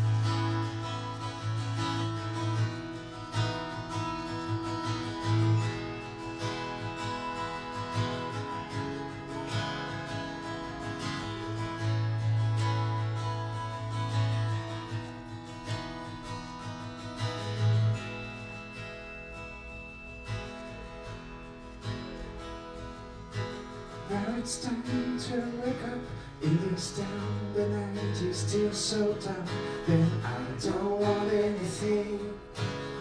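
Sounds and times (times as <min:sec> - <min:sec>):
acoustic guitar strumming: 0:00.0 - 0:33.0.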